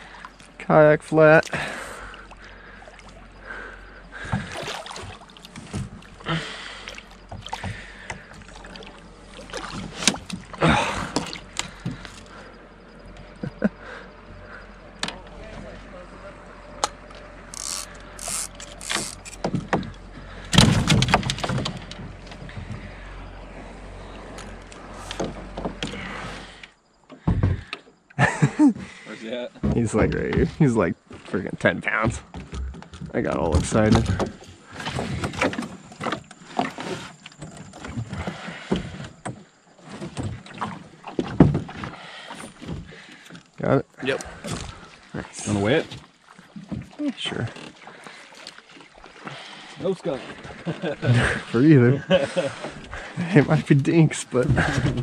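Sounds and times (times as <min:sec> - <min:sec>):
gear handled on kayak deck: 0:04.2 - 0:12.5, 0:16.8 - 0:22.9, 0:31.2 - 0:55.0
loud thumps: 0:20.5 - 0:22.0.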